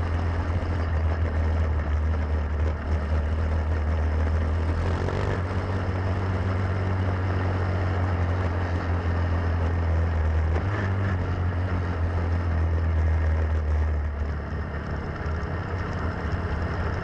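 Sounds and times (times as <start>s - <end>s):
kart engine running: 0.0s - 17.0s.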